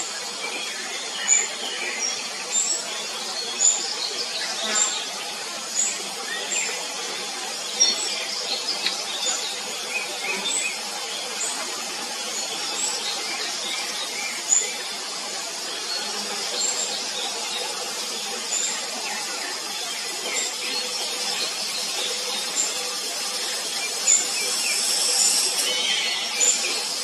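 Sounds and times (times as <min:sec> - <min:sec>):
high-pitched background drone: 0:05.7 - 0:27.0
nestlings begging calls: 0:23.9 - 0:27.0.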